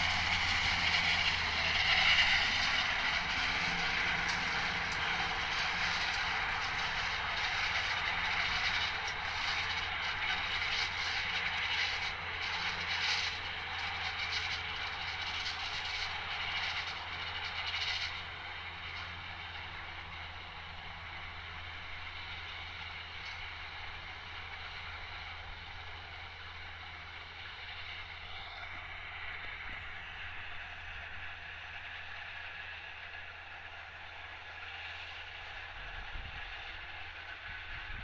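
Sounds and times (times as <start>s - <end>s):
tractor engine running: 0.0s - 38.0s.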